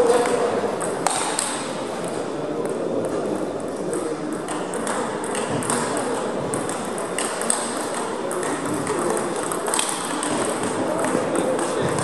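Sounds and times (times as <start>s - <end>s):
murmur of voices: 0.0s - 12.0s
table tennis ball clicks: 3.9s - 12.0s.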